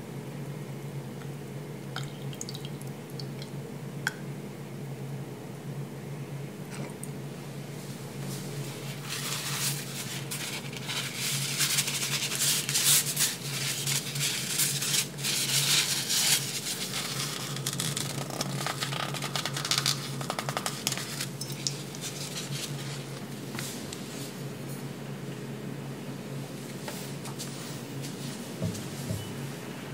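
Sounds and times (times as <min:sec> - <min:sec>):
steady low hum: 0:00.0 - 0:29.9
paper crinkling and rustling: 0:08.3 - 0:24.1.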